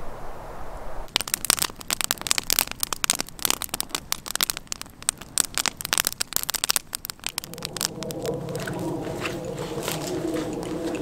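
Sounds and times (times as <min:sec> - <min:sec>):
campfire crackling and popping: 0:01.0 - 0:11.0.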